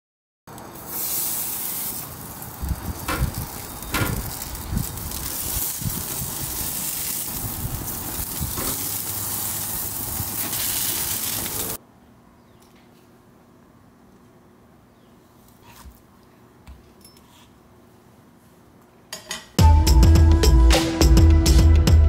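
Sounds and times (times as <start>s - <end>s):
meat sizzling on grill: 0.6s - 11.8s.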